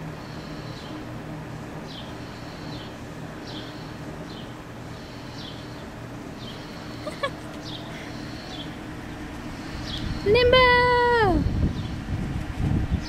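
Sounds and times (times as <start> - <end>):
steady low hum: 0.0 - 13.0
small bird chirping: 1.9 - 8.8, 9.6 - 10.4.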